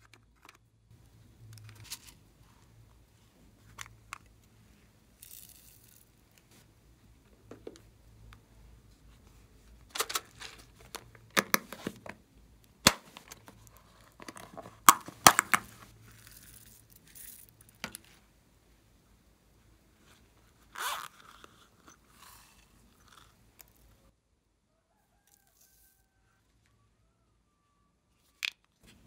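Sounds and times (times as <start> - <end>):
zipper opening: 20.6 - 23.4.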